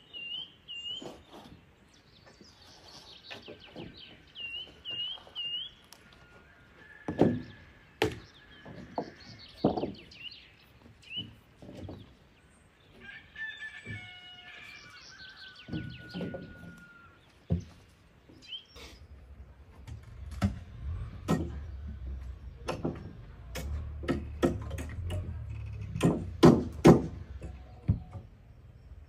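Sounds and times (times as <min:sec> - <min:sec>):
rooster crowing: 0:06.1 - 0:08.0, 0:13.0 - 0:17.2.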